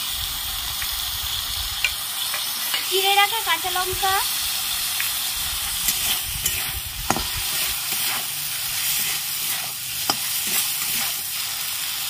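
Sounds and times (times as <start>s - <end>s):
vegetables sizzling in hot oil: 0.0s - 12.0s
metal spatula scraping pan: 5.8s - 11.3s.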